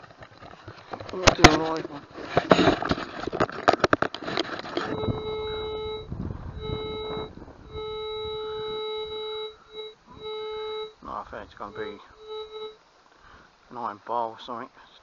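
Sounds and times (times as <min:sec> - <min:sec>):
rustling handling noise: 0:00.0 - 0:06.1
metal detector low tone: 0:04.6 - 0:12.8.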